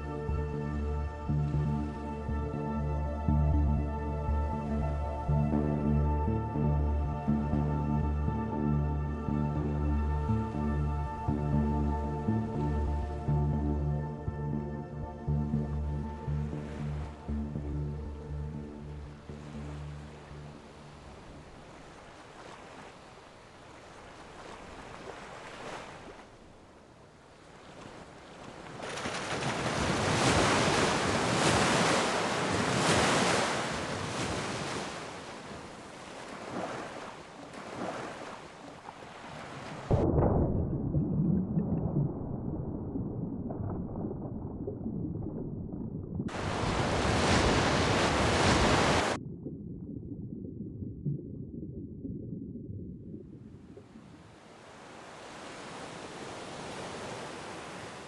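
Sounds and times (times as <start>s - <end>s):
muffled rumbling waves: 0.0s - 58.0s
ocean surf waves: 19.3s - 40.0s, 46.3s - 49.2s, 53.7s - 58.0s.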